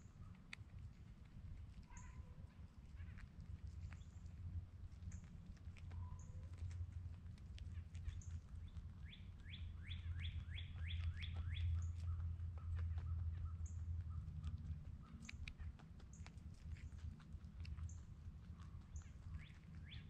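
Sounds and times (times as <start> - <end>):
low steady rumble: 0.0 - 20.0
songbird singing rising notes: 8.2 - 12.2.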